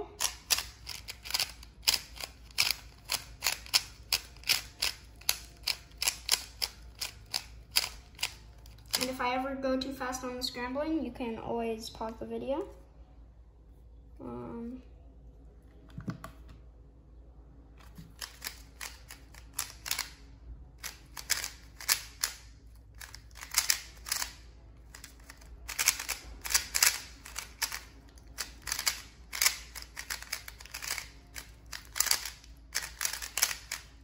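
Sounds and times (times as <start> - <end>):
speed cube plastic clicks: 0.2 - 9.1, 18.0 - 20.2, 20.8 - 34.0.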